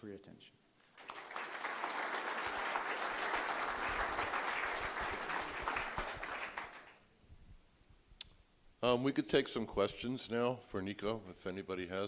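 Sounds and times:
audience applauding: 0:00.9 - 0:07.0.

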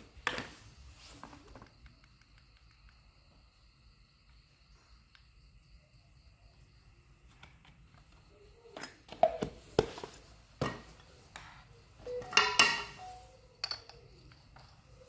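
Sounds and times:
metal tools clinking: 0:12.1 - 0:14.8.

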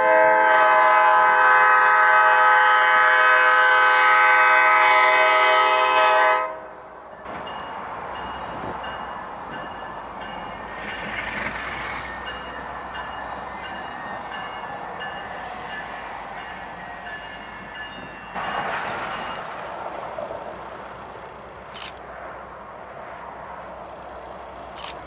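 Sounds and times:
train horn blast: 0:00.0 - 0:06.8
train running on track: 0:00.0 - 0:25.0.

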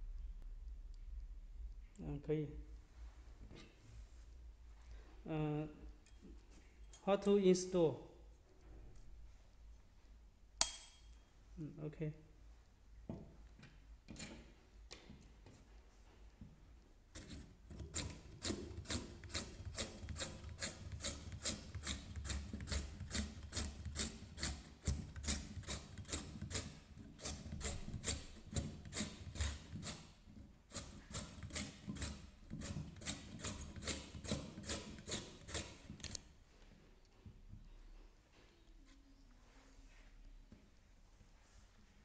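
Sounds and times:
carrot scraping on mandoline slicer: 0:17.2 - 0:36.2.

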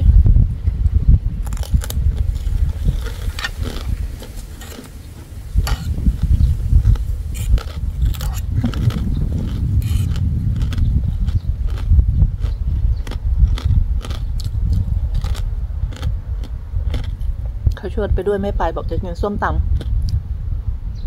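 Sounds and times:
loud low rumble: 0:00.0 - 0:21.0
crunchy chewing: 0:01.4 - 0:17.5
fork clicking and scraping on plate: 0:05.6 - 0:05.9.

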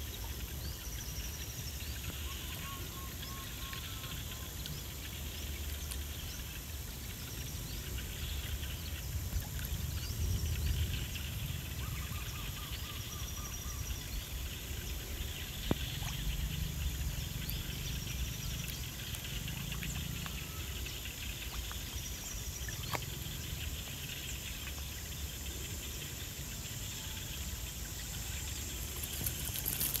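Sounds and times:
birds or insects chirping: 0:00.0 - 0:30.0
steady low rumble: 0:06.0 - 0:26.9.

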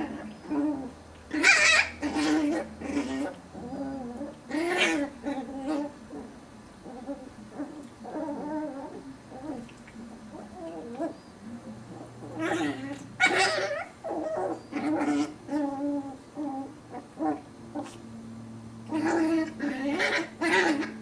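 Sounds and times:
puppies growling and whining: 0:00.0 - 0:18.0, 0:18.8 - 0:21.0
puppy sharp cry: 0:01.3 - 0:03.1, 0:12.4 - 0:15.4.

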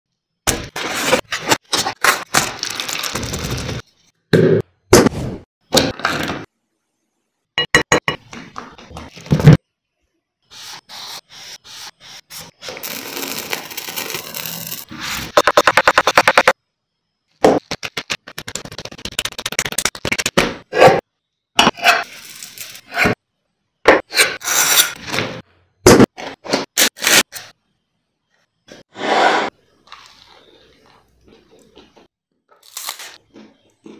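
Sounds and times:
knife scraping and spreading: 0:28.8 - 0:30.6.

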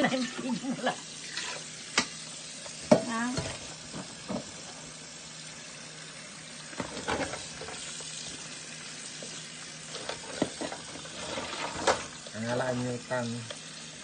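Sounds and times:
tap running into metal sink: 0:01.4 - 0:04.8, 0:06.7 - 0:08.0.

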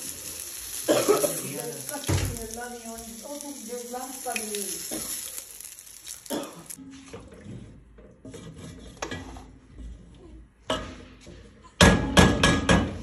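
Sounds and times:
knock: 0:11.8 - 0:13.0.

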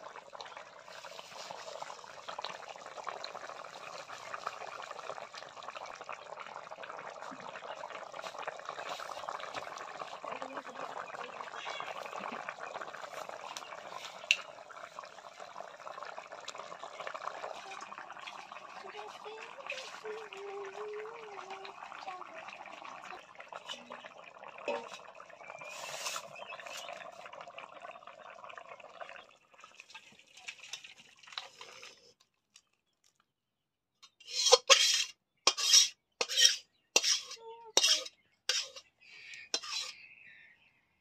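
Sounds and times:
low hiss from pot: 0:00.0 - 0:28.9, 0:34.2 - 0:38.8, 0:39.6 - 0:39.9
metal spatula scraping pot: 0:25.6 - 0:26.9, 0:34.1 - 0:38.9, 0:39.5 - 0:40.0.

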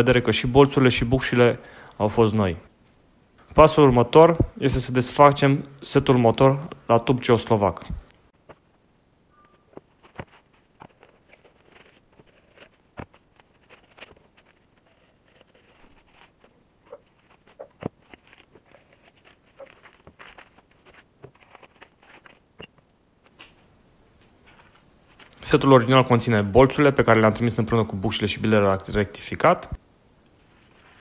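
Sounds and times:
wrapping paper rustling: 0:09.7 - 0:22.5, 0:24.4 - 0:25.6.

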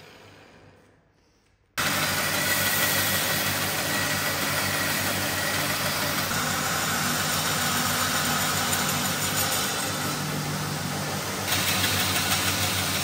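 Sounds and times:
electric grinder running: 0:01.8 - 0:13.0.

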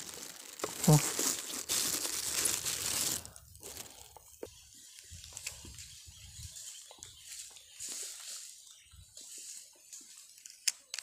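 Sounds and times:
grass rustling against microphone: 0:00.0 - 0:10.6.

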